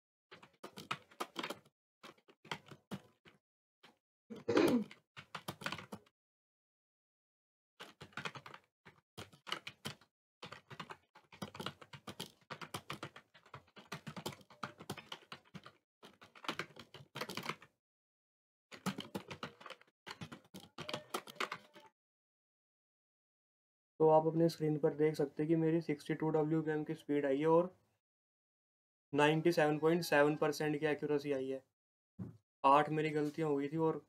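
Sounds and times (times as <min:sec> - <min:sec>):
keyboard typing clicks: 0:18.8 - 0:21.9.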